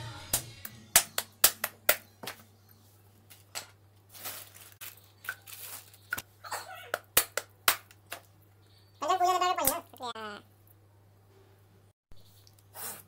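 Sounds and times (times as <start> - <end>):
coconut being struck: 0.3 - 2.1, 7.0 - 8.0
rustling handling noise: 2.8 - 6.3.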